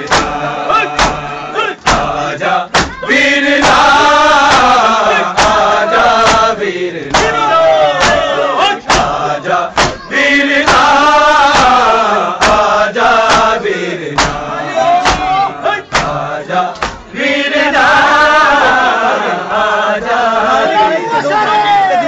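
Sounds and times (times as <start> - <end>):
hands slapping chests: 0.0 - 17.1
crowd of men chanting: 0.0 - 22.0.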